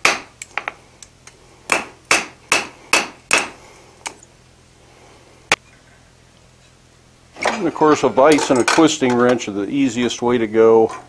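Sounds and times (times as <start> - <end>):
hammer striking steel on anvil: 0.0 - 0.8, 1.7 - 3.6.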